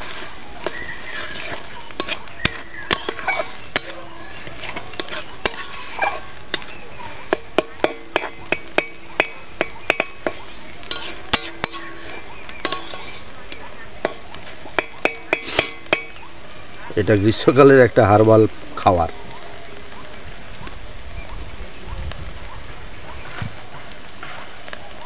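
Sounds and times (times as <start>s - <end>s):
metal spatula scraping pan: 0.0s - 16.2s
spatula clinking against pan: 0.0s - 16.2s
paste sizzling: 0.0s - 18.9s.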